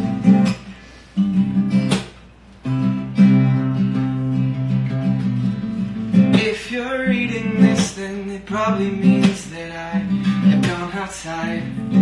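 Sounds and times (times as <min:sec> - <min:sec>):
acoustic guitar strumming: 0:00.0 - 0:12.0
man singing: 0:06.1 - 0:12.0.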